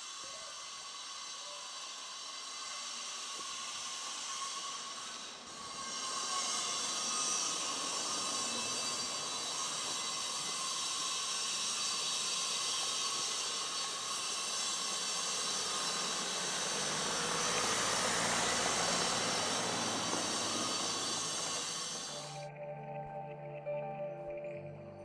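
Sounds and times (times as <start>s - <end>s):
street ambience hiss: 0.0s - 24.8s
vehicle passing: 16.7s - 22.2s.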